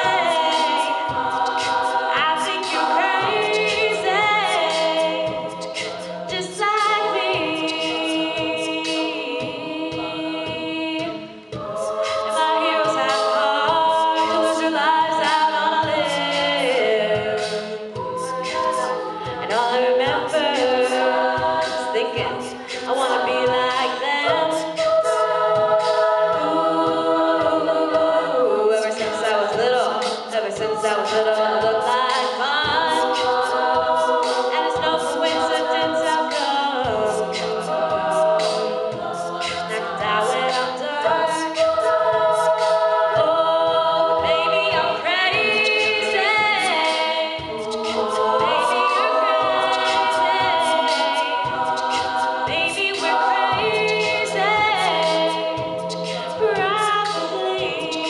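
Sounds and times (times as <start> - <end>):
beatboxed vocal percussion: 0.0 - 58.0
women singing in harmony: 0.0 - 58.0.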